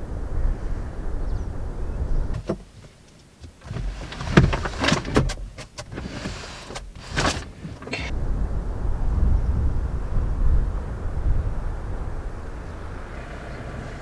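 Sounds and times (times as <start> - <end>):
wind rumble on microphone: 0.0 - 2.9, 3.6 - 14.0
gear knocking and rattling: 2.3 - 8.1.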